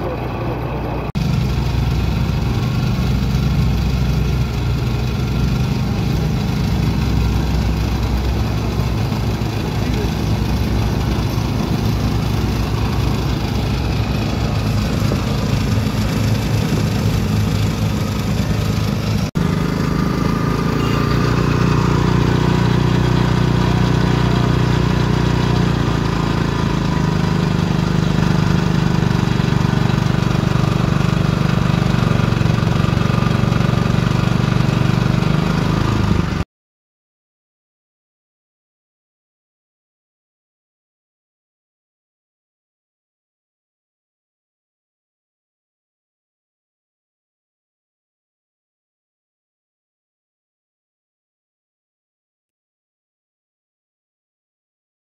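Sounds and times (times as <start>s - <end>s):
small engine running: 0.0s - 36.4s.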